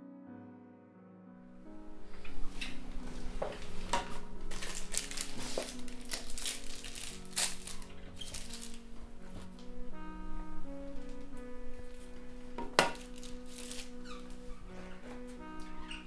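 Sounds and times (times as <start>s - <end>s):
soft background music: 0.0s - 16.0s
plastic wrapper crinkling: 3.5s - 9.7s, 12.8s - 14.6s.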